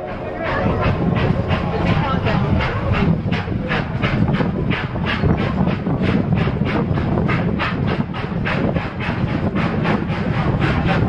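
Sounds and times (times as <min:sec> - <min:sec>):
rail car rumbling on track: 0:00.0 - 0:11.0
steam locomotive chuffing: 0:00.0 - 0:11.0.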